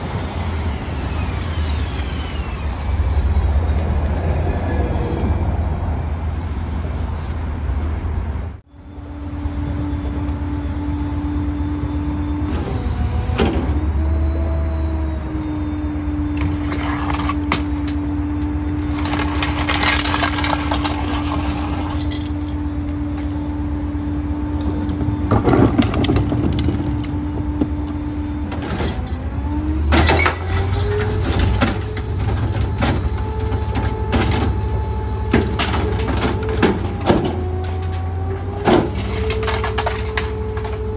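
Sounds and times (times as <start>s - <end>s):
garbage truck engine rumbling: 0.0s - 40.9s
bins clanking and rattling: 16.4s - 18.0s, 18.8s - 22.6s, 24.9s - 27.7s, 29.9s - 40.9s.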